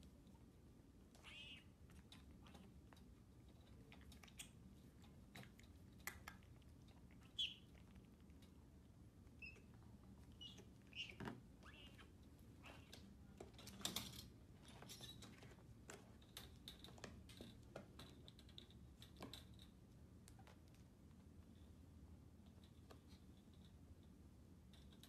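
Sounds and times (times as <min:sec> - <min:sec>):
faint handling clicks and rustling: 0:12.2 - 0:21.5.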